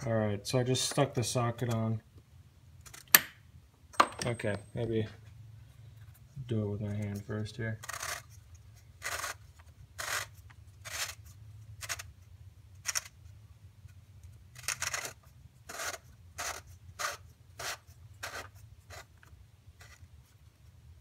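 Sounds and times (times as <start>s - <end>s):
steady low hum: 3.3s - 7.6s
plastic cap scraping rasp: 7.8s - 12.1s, 14.6s - 19.2s.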